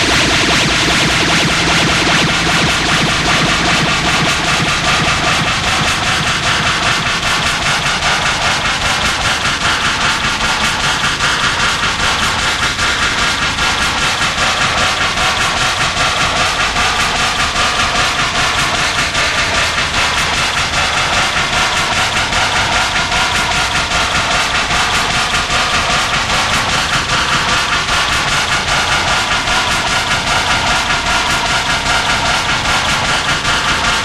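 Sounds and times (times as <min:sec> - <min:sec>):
distorted electronic noise stuttering: 0:00.0 - 0:08.7.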